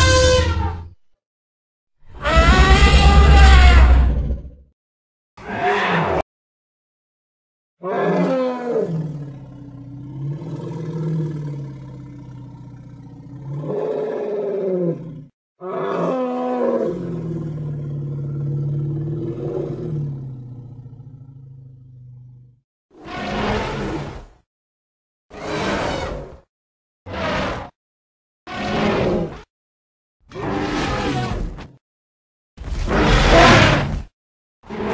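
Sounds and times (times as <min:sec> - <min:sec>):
deep animal calls: 0:02.1 - 0:04.4.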